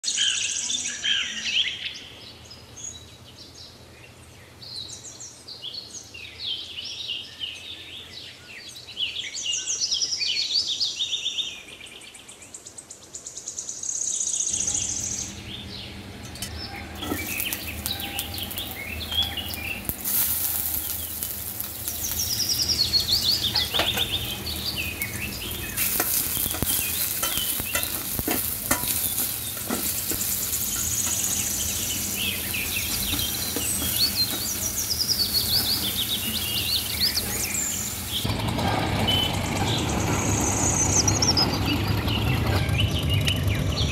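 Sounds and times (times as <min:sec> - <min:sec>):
birds chirping: 0:14.2 - 0:43.9
onions sizzling in hot oil: 0:14.6 - 0:38.3
spatula scraping a pan: 0:16.2 - 0:38.2.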